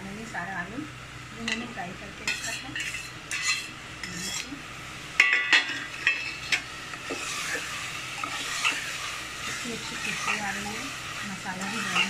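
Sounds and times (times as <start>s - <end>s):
frying hiss in oil: 0.0s - 12.0s
ladle scraping a pot: 2.3s - 4.5s, 5.2s - 12.0s.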